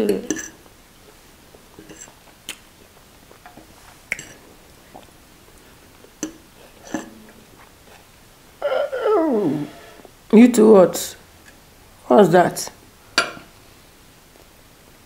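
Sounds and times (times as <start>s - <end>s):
chewing and mouth sounds: 1.5s - 8.1s.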